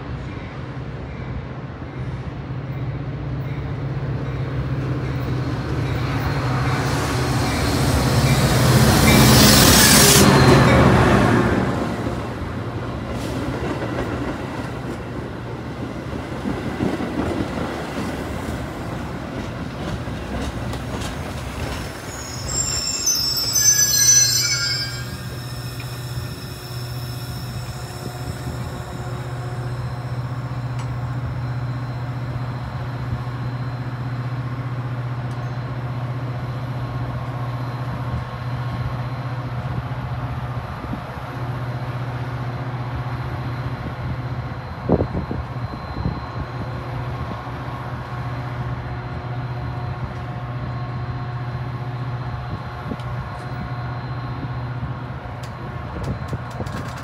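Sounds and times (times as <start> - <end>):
train rumbling: 0.1 - 57.0
brakes and wheels squealing: 21.0 - 33.9.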